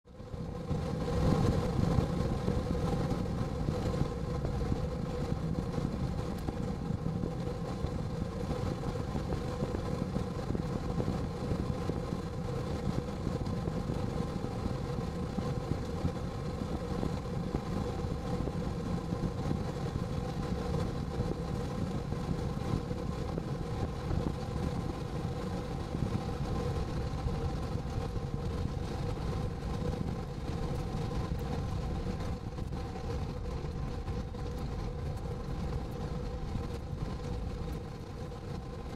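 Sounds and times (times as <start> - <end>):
car engine and road noise: 0.1 - 38.9.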